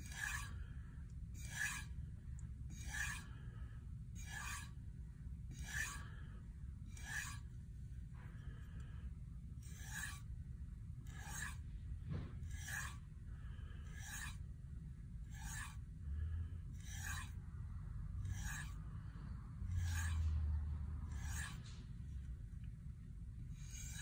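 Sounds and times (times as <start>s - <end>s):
rasping sharpening strokes: 0.0s - 0.7s, 1.3s - 2.1s, 2.7s - 4.9s, 5.5s - 7.6s, 9.6s - 10.4s, 11.0s - 11.8s, 12.4s - 14.5s, 15.2s - 15.9s, 16.7s - 17.5s, 18.1s - 22.0s, 23.4s - 24.0s
low rumble: 17.4s - 23.5s.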